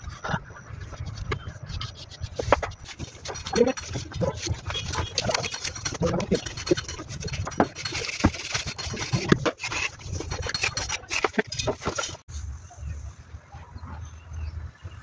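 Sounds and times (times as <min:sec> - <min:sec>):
trowel scraping wet plaster: 0:00.8 - 0:12.2.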